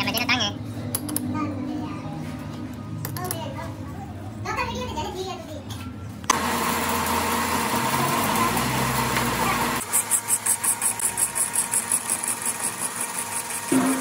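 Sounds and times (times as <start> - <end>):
metal lathe humming: 6.3 - 14.0.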